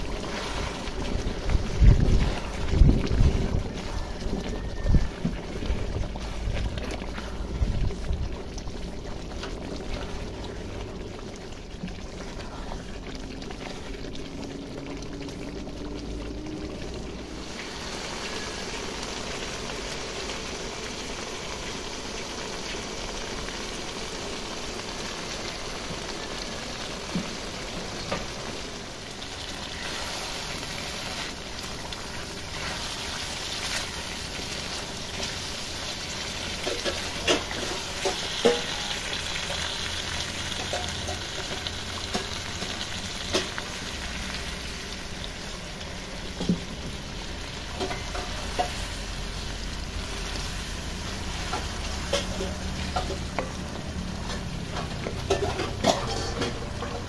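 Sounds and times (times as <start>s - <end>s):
spatula stirring in wok: 0.0s - 14.4s, 29.2s - 57.0s
chicken sizzling in sauce: 0.0s - 57.0s.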